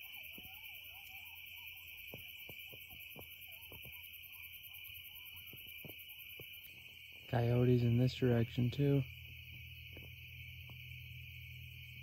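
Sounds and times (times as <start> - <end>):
coyotes howling and yipping: 0.0 - 12.0
night insects chorus: 0.0 - 12.0.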